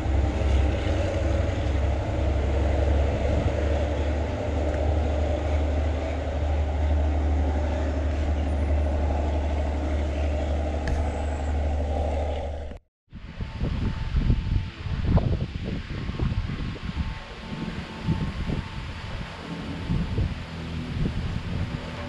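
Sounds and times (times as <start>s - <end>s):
diesel engine idling: 0.0s - 12.8s
wind gusts on microphone: 0.0s - 22.0s.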